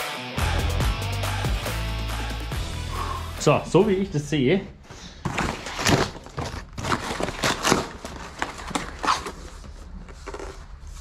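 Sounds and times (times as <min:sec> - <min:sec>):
packaging rustling and crinkling: 0:05.1 - 0:11.0.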